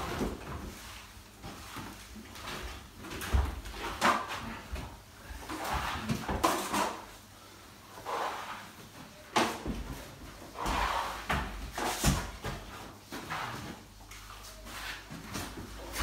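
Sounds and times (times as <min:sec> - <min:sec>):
sponge float swishing on wet plaster: 0:08.0 - 0:08.8.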